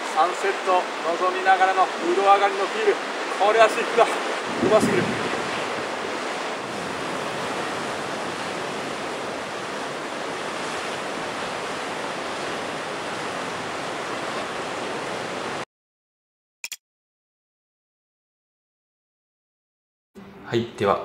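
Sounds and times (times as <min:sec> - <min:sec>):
ocean surf: 0:00.0 - 0:15.7
wind: 0:00.0 - 0:15.7.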